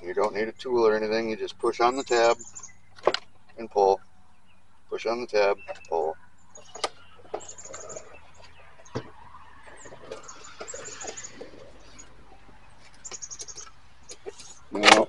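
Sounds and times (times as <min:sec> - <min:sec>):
handling noise: 0:06.5 - 0:15.0.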